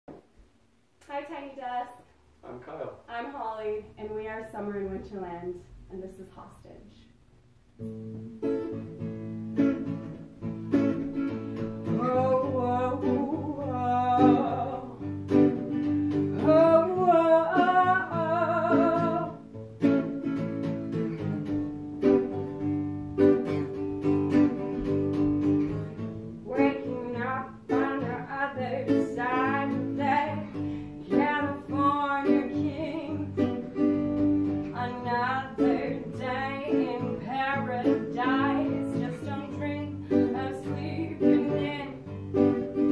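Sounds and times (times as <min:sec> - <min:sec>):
person singing: 0:11.9 - 0:15.0, 0:16.4 - 0:19.4.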